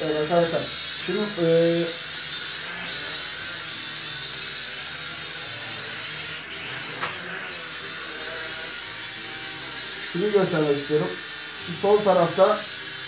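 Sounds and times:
toy drone motors whirring: 0.0s - 13.0s
short click: 7.0s - 7.2s.

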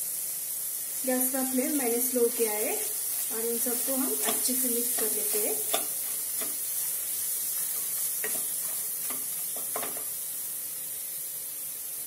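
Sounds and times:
masala sizzling in oil: 0.0s - 12.0s
spatula scraping a pan: 2.9s - 10.2s.

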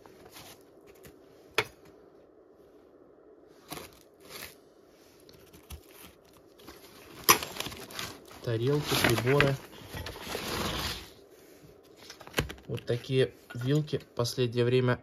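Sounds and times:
rustling: 3.5s - 13.2s.

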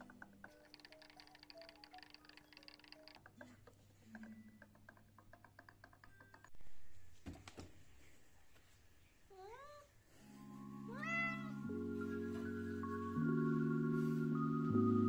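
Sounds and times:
printer ticking and clicking: 0.0s - 6.5s.

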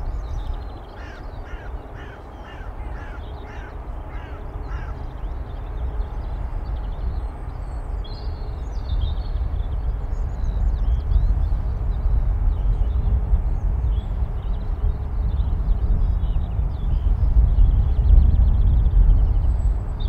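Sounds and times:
crow cawing: 1.0s - 5.0s.

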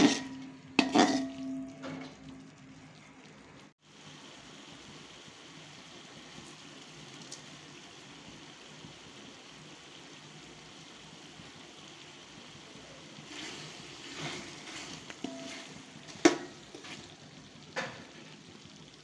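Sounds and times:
spoon scraping a pot: 0.0s - 2.0s, 13.3s - 17.2s
food sizzling in a pot: 0.0s - 19.0s.

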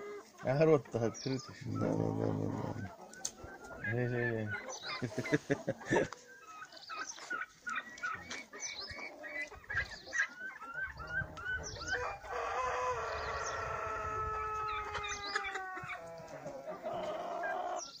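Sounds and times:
chickens chirping: 0.0s - 18.0s
rooster crowing: 11.9s - 15.8s.

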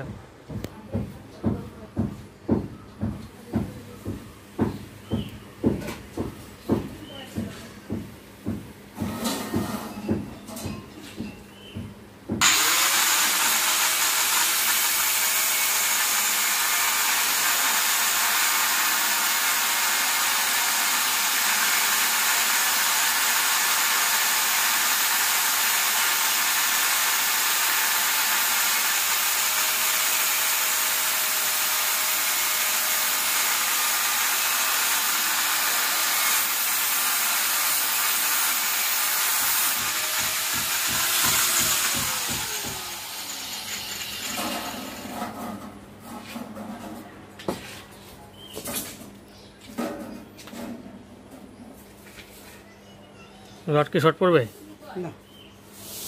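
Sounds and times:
grinder disc winding down: 12.4s - 45.0s
angle grinder cutting steel rod: 12.4s - 45.1s.

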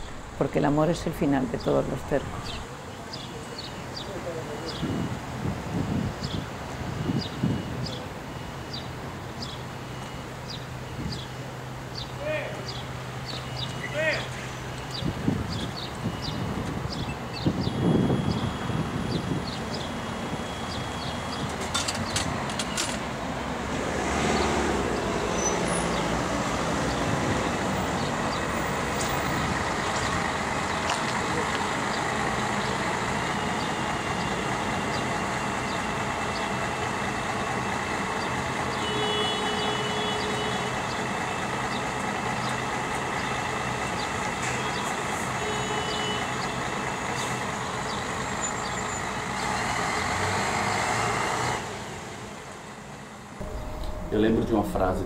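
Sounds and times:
bus engine and road rumble: 0.0s - 55.0s
short faint high tones: 53.4s - 55.0s.

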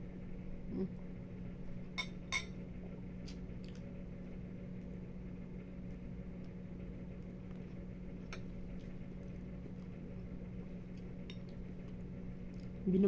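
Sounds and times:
steady low hum: 0.0s - 13.0s
metal spoon clinking ceramic bowl: 2.0s - 2.5s.

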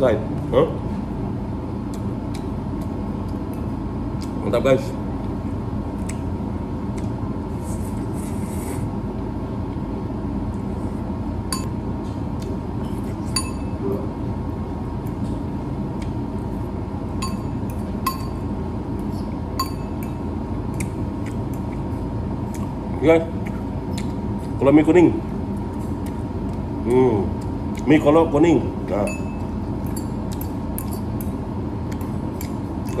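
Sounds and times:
steady hum: 0.0s - 33.0s
fork clinking on ceramic bowl: 13.3s - 13.8s, 17.2s - 18.4s, 19.6s - 20.2s.

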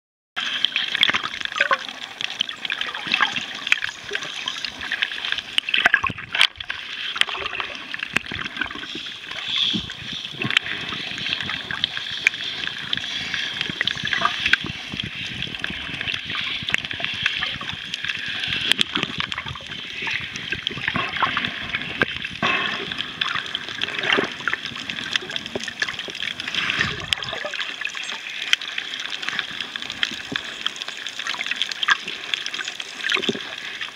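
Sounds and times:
underwater water noise: 0.4s - 33.9s
small crackling clicks: 0.6s - 33.9s.

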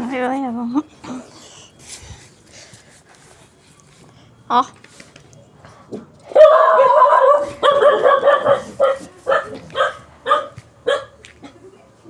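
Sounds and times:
dog barking: 6.3s - 11.2s.

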